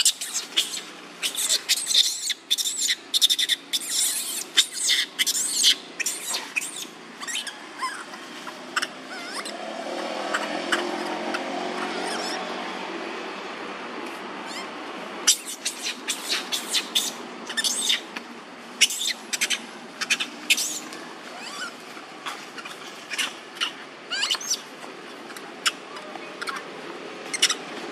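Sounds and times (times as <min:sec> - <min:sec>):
baby monkey crying: 0:00.0 - 0:09.6, 0:10.3 - 0:12.5, 0:14.5 - 0:14.7, 0:15.3 - 0:18.1, 0:18.8 - 0:24.7, 0:27.3 - 0:27.6
low background noise: 0:00.0 - 0:27.9.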